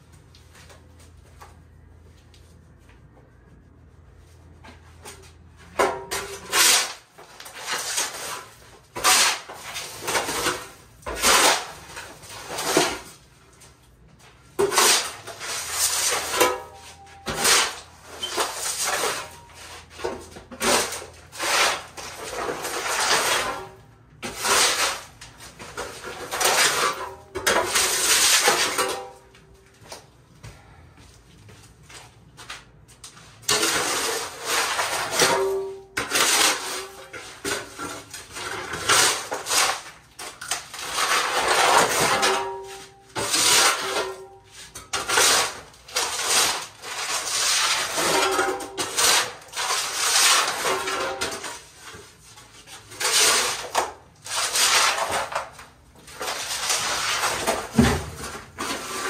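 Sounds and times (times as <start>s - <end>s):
shovel scraping dirt on floor: 5.0s - 13.3s, 14.2s - 29.3s, 33.3s - 59.0s.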